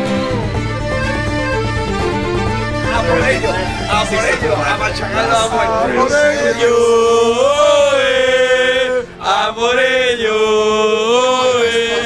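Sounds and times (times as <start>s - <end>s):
men singing a chant in unison: 4.8s - 12.0s.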